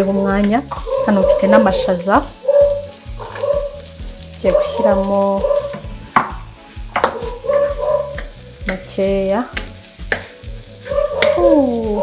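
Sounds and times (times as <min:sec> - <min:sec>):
vegetables sizzling: 0:00.0 - 0:12.0
spatula scraping vegetables in wok: 0:00.4 - 0:11.4
spatula knocking against pan: 0:05.6 - 0:08.9, 0:09.6 - 0:10.3, 0:11.0 - 0:11.4.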